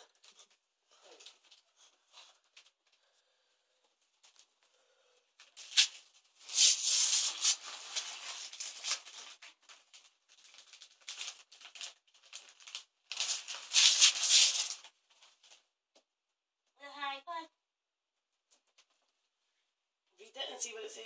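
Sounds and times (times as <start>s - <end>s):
paper crinkling: 5.4s - 15.6s
wrapping paper tearing and rustling: 5.4s - 15.6s.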